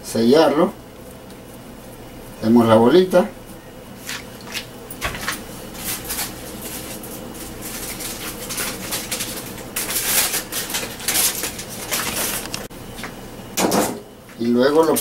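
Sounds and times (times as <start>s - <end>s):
aluminium foil crinkling: 5.0s - 12.7s.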